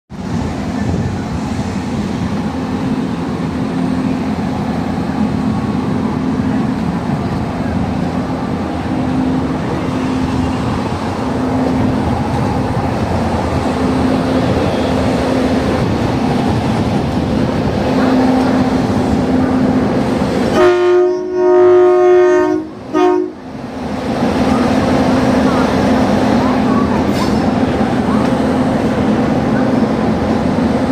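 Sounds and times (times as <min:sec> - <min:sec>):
electric train rumbling: 0:00.1 - 0:30.9
train horn: 0:20.5 - 0:23.4.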